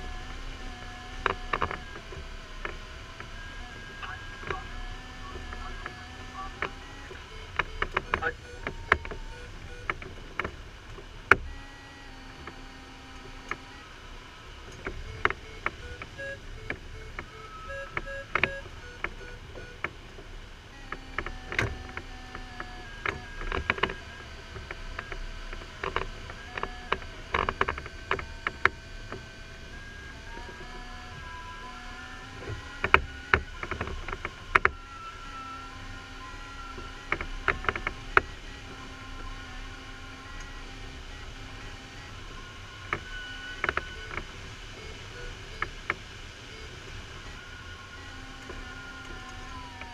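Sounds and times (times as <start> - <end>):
variometer tone and beeps: 3.1 - 10.0, 14.9 - 19.9, 20.7 - 45.8
sharp taps and clicks: 14.7 - 19.9, 20.8 - 22.4.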